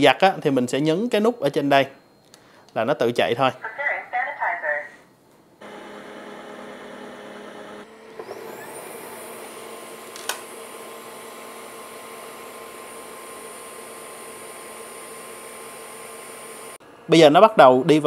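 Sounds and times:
vacuum motor humming and whining: 5.6 - 16.8
click: 10.1 - 10.4.

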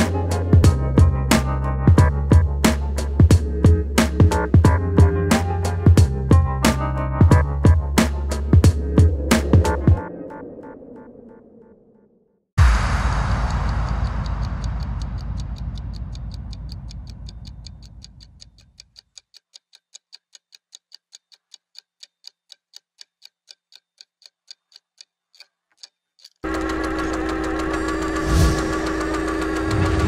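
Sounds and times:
clock-like ticking: 0.0 - 11.1, 12.6 - 30.0
deep rumble: 7.4 - 11.6, 12.6 - 18.4
loud mechanical drone: 26.5 - 30.0.

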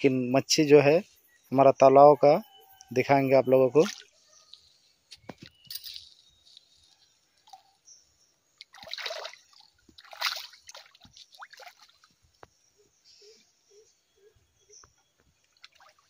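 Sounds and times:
water dripping: 3.8 - 4.6, 8.6 - 12.5
fish splashing in water: 8.6 - 12.2.

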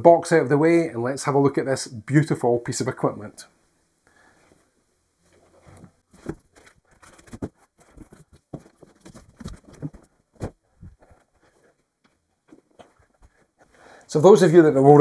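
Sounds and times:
cardboard box rustling and knocking: 5.7 - 11.7.

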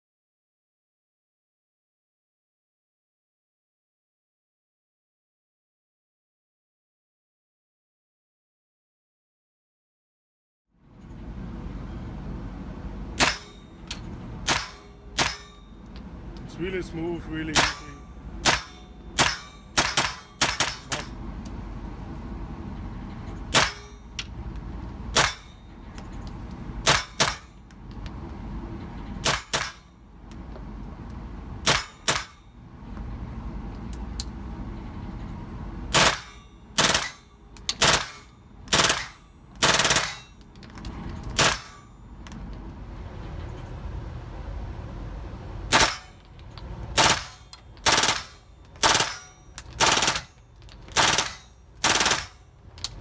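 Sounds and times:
steady low rumble: 10.8 - 53.0
silenced gunshots: 17.5 - 21.1, 23.5 - 23.8, 26.8 - 27.5, 31.6 - 32.4, 35.9 - 37.2, 37.8 - 40.3, 41.4 - 41.8, 45.7 - 46.2, 47.0 - 52.4.

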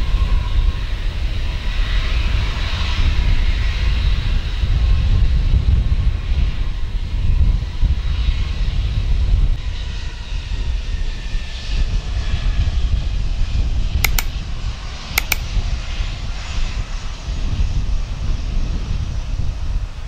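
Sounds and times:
sharp clicks: 14.0 - 14.3, 15.2 - 15.4.

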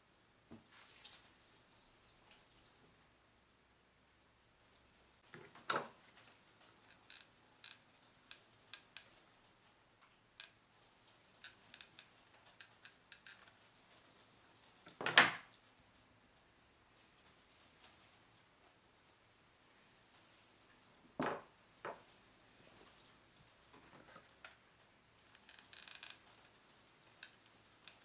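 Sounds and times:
light clicks and rustles: 4.7 - 16.1.

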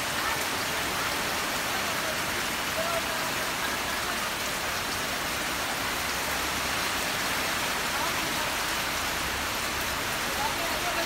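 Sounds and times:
heavy rain on metal roofs: 0.0 - 11.0.

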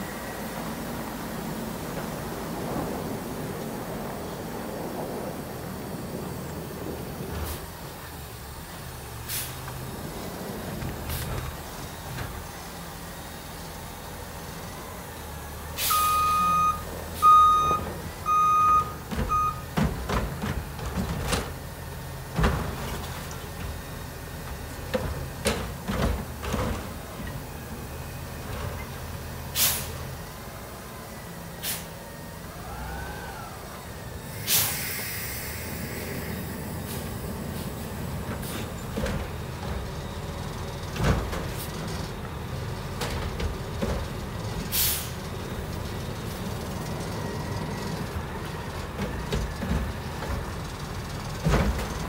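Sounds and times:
garbage truck engine running: 0.0 - 52.0
air brake hiss: 9.2 - 9.6, 15.8 - 16.2, 29.5 - 30.1, 31.6 - 32.0, 34.2 - 38.8, 44.7 - 45.2
reversing alarm beeps: 15.8 - 19.7.

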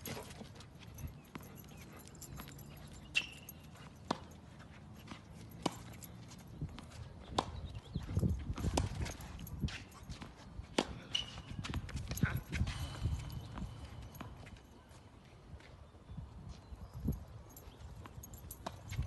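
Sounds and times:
racket striking tennis ball: 10.2 - 12.8.

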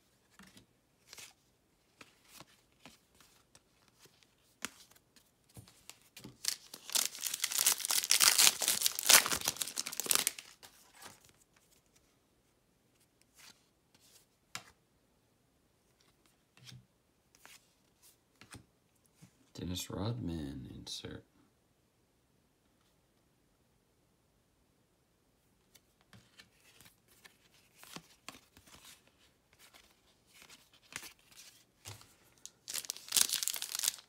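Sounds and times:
foil wrapper crinkling: 6.4 - 10.6, 32.4 - 34.0.

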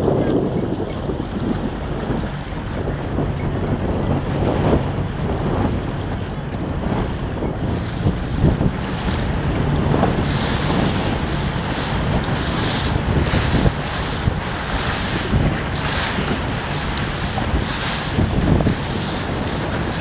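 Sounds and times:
small waves splashing: 0.0 - 20.0
wind buffeting microphone: 0.0 - 20.0.

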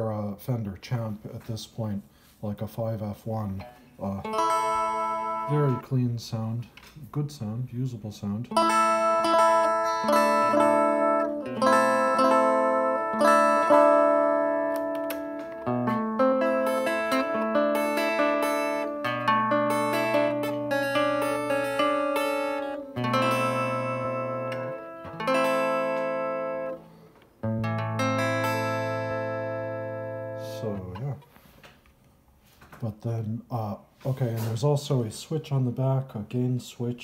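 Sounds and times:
clean electric guitar chords: 3.6 - 5.9, 8.5 - 31.2.

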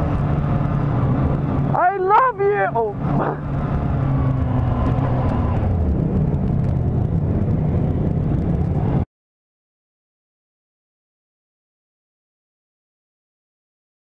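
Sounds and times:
motorcycle engine cruising: 0.0 - 9.0
wind noise: 0.0 - 9.0.

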